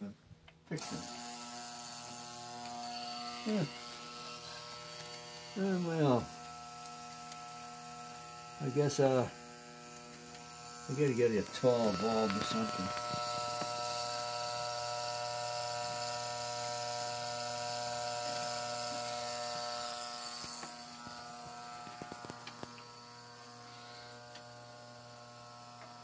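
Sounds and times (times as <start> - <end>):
toy electric train buzzing: 0.8 - 26.0.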